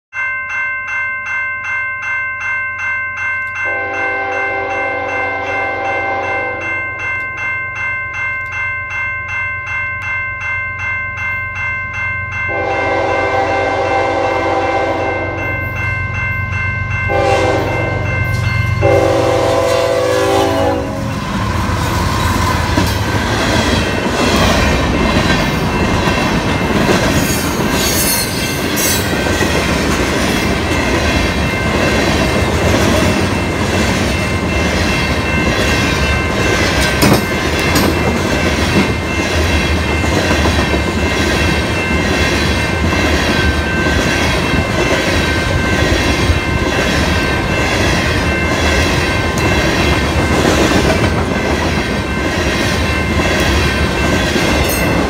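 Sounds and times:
railroad crossing bell ringing: 0.1 - 55.0
locomotive horn: 3.7 - 6.7, 12.5 - 15.4, 17.1 - 18.1, 18.8 - 21.3
freight cars rumbling and clacking: 28.6 - 55.0.

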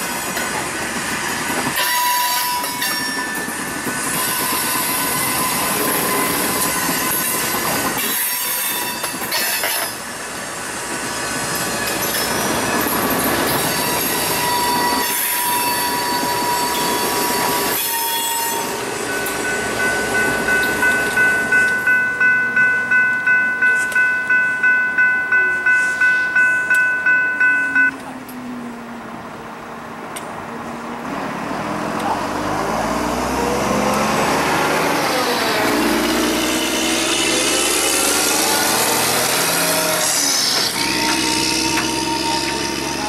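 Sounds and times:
train wheels rumbling on rails: 0.0 - 43.0
train wheels squealing: 1.3 - 10.0, 11.1 - 21.9, 35.0 - 43.0
crossing bell ringing: 1.7 - 10.1, 11.5 - 28.3.

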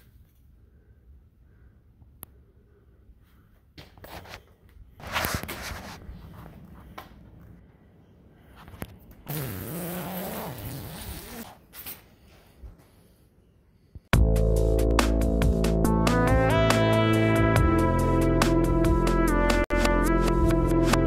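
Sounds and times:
zipper zipping: 9.3 - 11.6.

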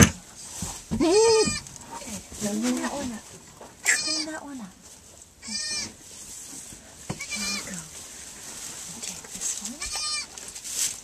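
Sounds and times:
goat bleating: 1.0 - 1.7, 3.8 - 4.4, 5.4 - 6.0, 7.1 - 7.8, 9.8 - 10.3.

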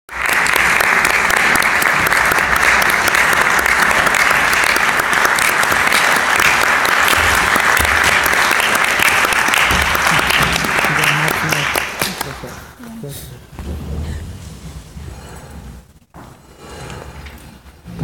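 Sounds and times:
audience applauding: 0.1 - 12.8.

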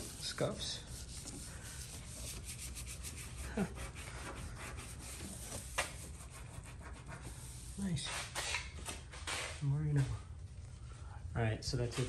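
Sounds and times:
cloth rubbing car paint: 0.0 - 9.6.

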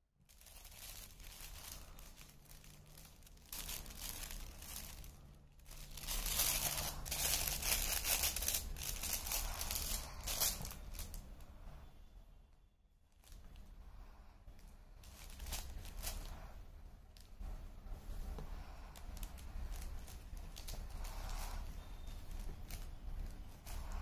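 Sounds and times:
crinkle paper crackling: 0.0 - 11.4, 15.0 - 16.5, 18.6 - 24.0.

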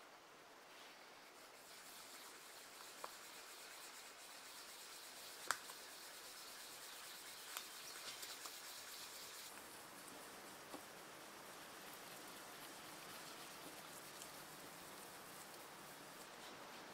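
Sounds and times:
sandpaper scraping on metal blade: 1.6 - 9.5.

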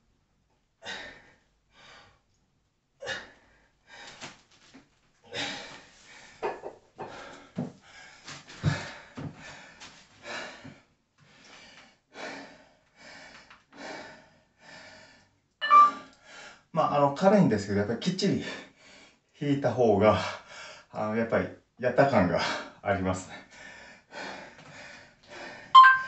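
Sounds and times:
man breathing hard: 0.8 - 2.2, 5.3 - 6.4, 7.0 - 15.3, 23.4 - 25.7.

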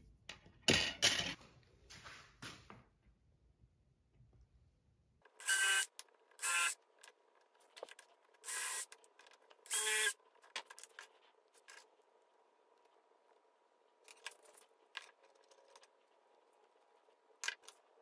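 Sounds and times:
cordless drill drilling into wood: 5.4 - 6.8, 8.5 - 8.9, 9.7 - 10.2.

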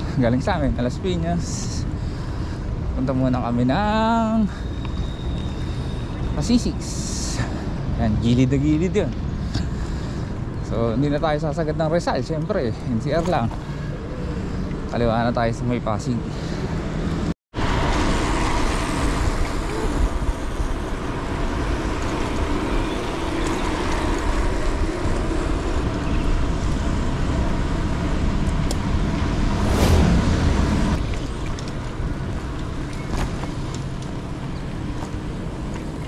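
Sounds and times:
road traffic rumble: 0.0 - 36.0
vehicle passing close: 16.7 - 32.7.

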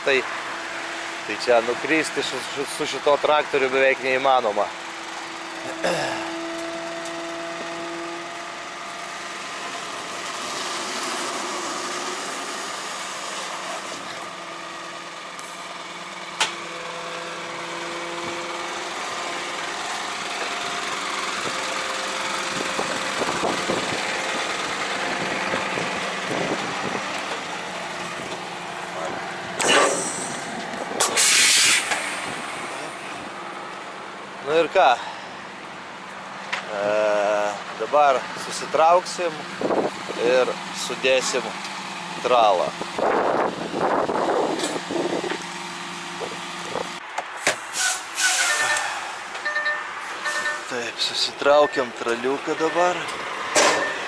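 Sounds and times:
diesel engine running: 0.0 - 54.0
hiss bursts: 31.0 - 32.8, 47.4 - 49.4.

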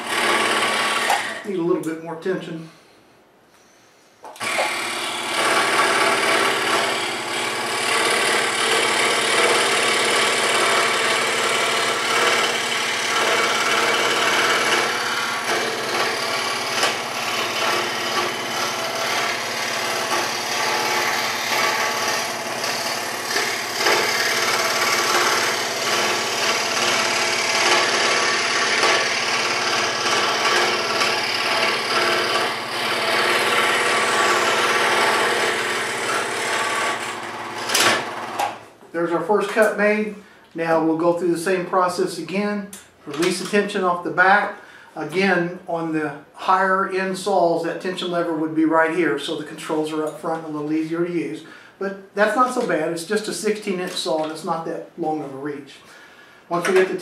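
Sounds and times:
scroll saw cutting wood: 0.0 - 1.5, 4.3 - 38.6.

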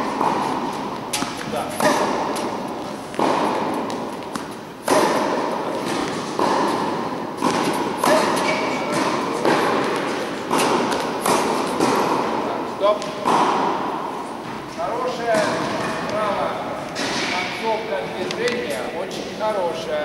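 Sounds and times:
tennis ball bouncing: 0.0 - 14.6
racquet hitting tennis ball: 0.0 - 19.6.

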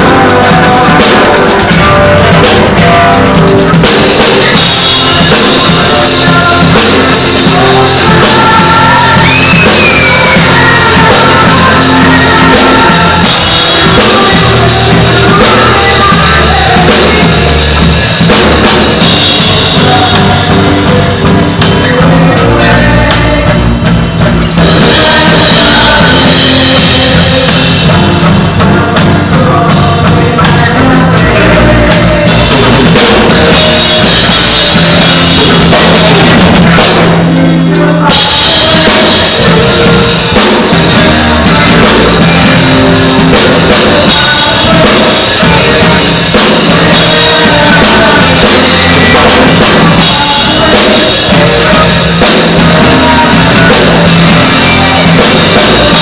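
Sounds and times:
drum kit beat: 0.0 - 56.0
rock band playing: 0.0 - 56.0.

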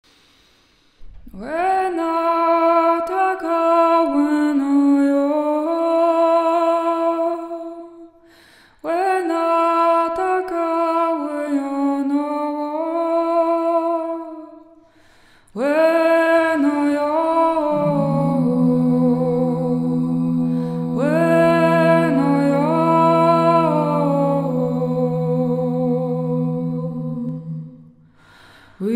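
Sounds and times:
woman singing wordless notes: 1.4 - 7.8, 8.9 - 14.5, 15.6 - 27.9
singer breathing: 8.2 - 8.8, 14.8 - 15.6, 28.0 - 28.8
low tone: 17.1 - 28.1.

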